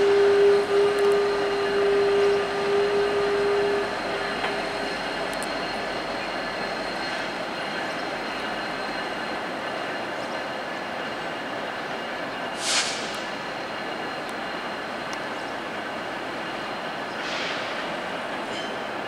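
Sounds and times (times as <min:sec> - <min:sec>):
faint high steady tones: 0:00.0 - 0:19.0
train wheels rolling on rails: 0:00.0 - 0:19.0
short sharp hiss: 0:12.6 - 0:13.3.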